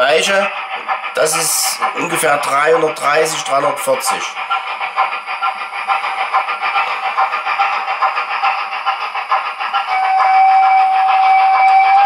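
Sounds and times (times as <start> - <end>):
steam locomotive chuffing: 0.0 - 12.0
steam whistle: 9.9 - 12.0.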